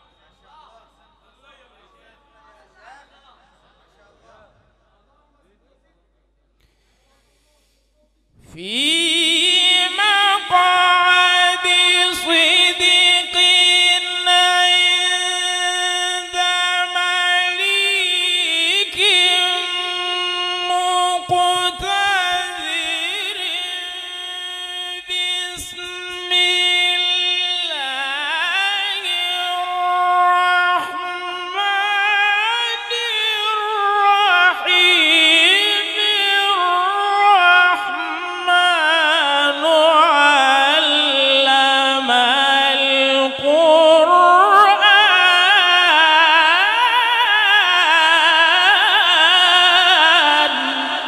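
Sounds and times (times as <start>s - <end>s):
man reciting melodically: 8.4s - 51.0s.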